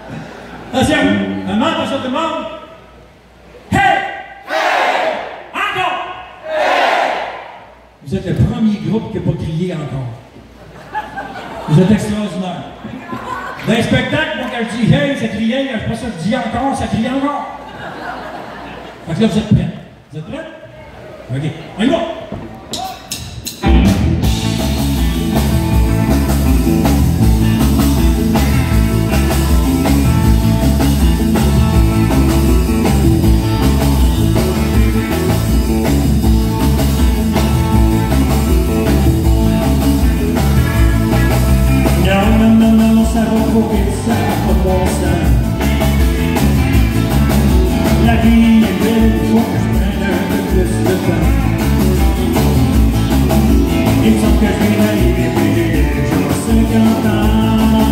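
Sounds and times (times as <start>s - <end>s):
country-rock band playing: 0.0s - 2.6s, 22.9s - 57.9s
man singing: 41.9s - 45.6s, 47.8s - 51.7s, 53.7s - 57.9s.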